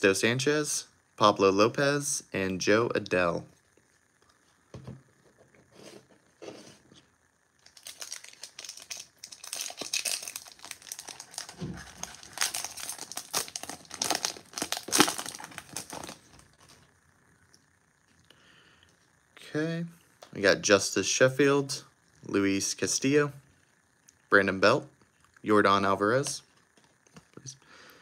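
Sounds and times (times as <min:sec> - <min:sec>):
foil wrapper crinkling: 0:07.6 - 0:16.9.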